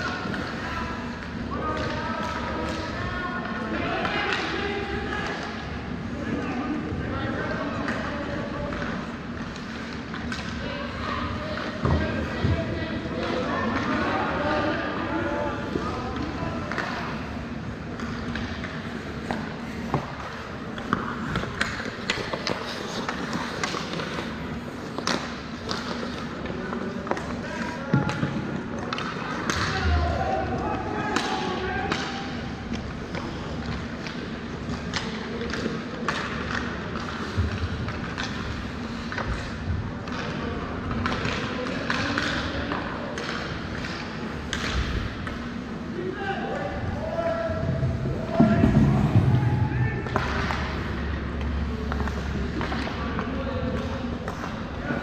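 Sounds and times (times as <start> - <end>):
arena background hum: 0.0 - 55.0
hockey sticks and puck clacking: 0.0 - 55.0
skates scraping ice: 15.2 - 30.4.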